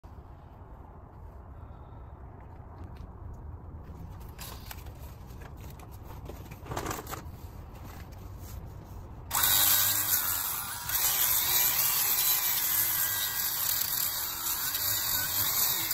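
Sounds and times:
handling clicks and rustling: 0:03.9 - 0:08.4
grinder sanding metal: 0:09.3 - 0:15.9.

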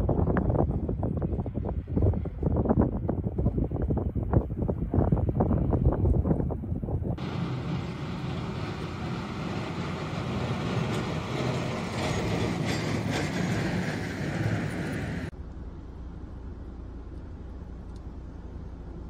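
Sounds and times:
vehicle engine rumbling: 0:00.0 - 0:19.0
loud noisy rush: 0:07.2 - 0:15.3.

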